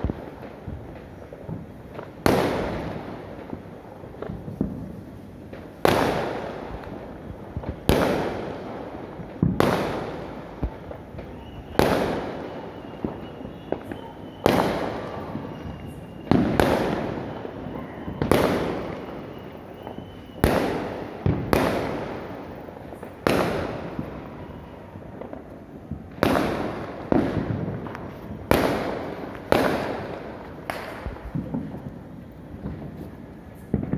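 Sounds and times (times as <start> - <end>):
fireworks bangs echoing: 0.0 - 33.9.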